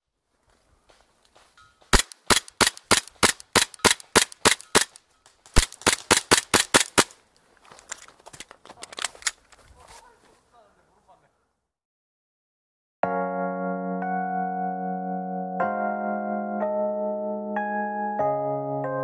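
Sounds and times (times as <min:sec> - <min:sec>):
airsoft pistol shots: 0:01.9 - 0:05.0, 0:05.6 - 0:07.2.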